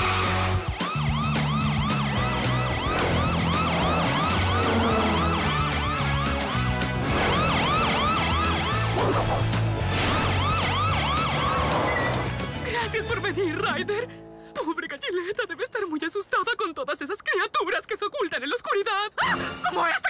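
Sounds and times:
upbeat background music: 0.0s - 16.7s
cartoon police siren yelping: 0.6s - 12.2s.

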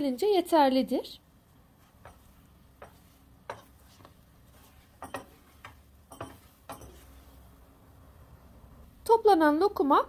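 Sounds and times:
wooden spoon knocking against pot: 2.0s - 3.8s, 5.0s - 7.1s.

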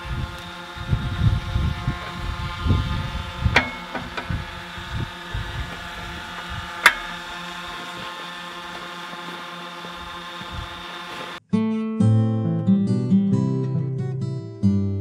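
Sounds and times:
tractor engine idling: 0.0s - 11.4s.

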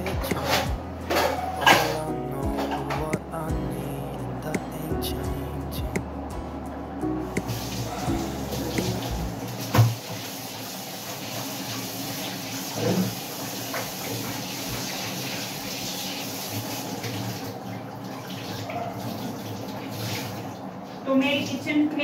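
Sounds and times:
tap water running into sink: 7.4s - 20.7s.

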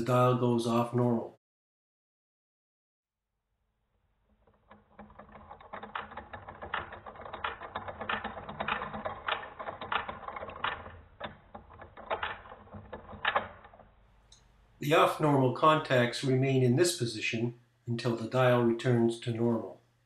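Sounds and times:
rotary phone dial clicking: 4.6s - 13.9s.

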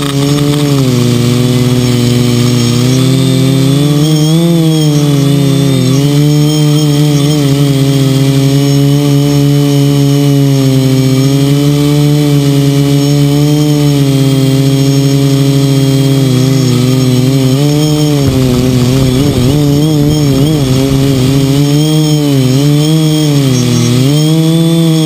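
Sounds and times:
drone motors buzzing: 0.0s - 25.0s.

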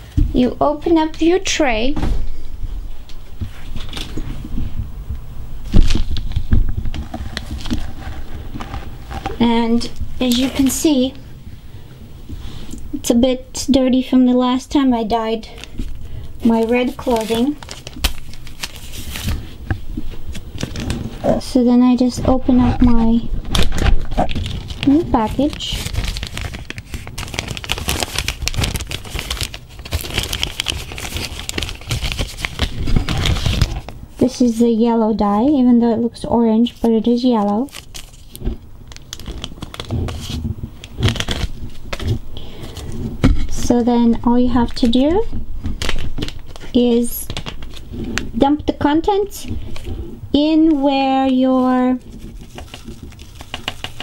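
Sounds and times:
plastic packet crinkling: 5.7s - 11.1s, 15.5s - 21.3s, 23.5s - 34.0s, 36.8s - 43.0s, 44.4s - 48.4s, 52.0s - 54.0s.

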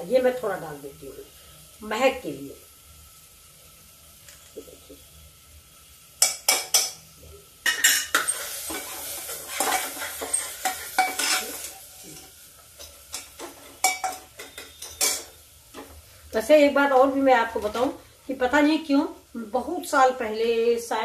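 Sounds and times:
masala sizzling: 0.0s - 21.0s
spoon stirring and scraping pot: 7.7s - 15.9s
metal spoon clinking on pot: 12.8s - 15.3s.

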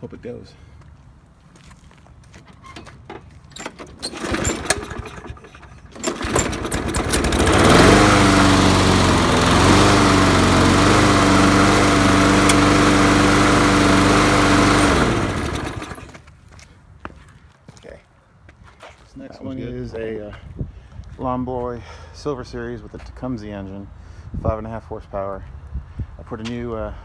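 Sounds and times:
lawn mower engine running: 3.6s - 16.3s.

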